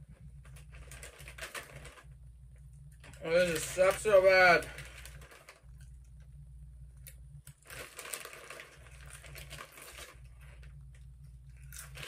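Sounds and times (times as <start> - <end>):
foil chip bag crinkling: 0.0 - 2.2, 2.9 - 6.2, 7.0 - 12.0
crunching tortilla chips: 3.0 - 5.9, 7.5 - 10.8, 11.4 - 12.0.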